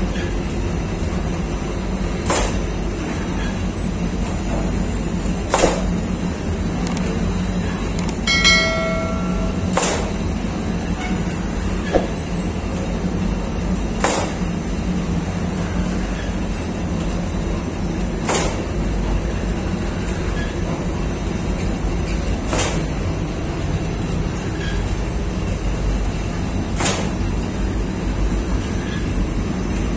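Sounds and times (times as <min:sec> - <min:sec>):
dough sheeting machine rumble: 0:00.0 - 0:07.9
sharp clicks: 0:08.0 - 0:08.2.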